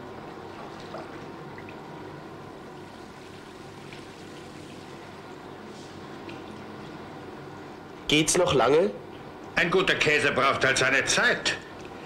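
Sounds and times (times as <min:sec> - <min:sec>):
curd sloshing and trickling: 0:00.1 - 0:07.7.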